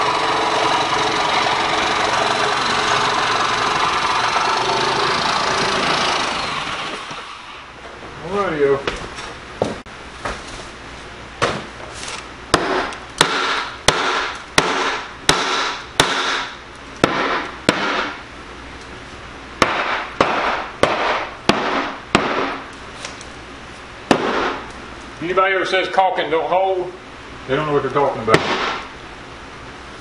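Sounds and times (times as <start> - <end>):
hammer pounding wooden panel: 12.5 - 18.2, 19.6 - 22.6, 24.1 - 24.6, 28.3 - 28.9.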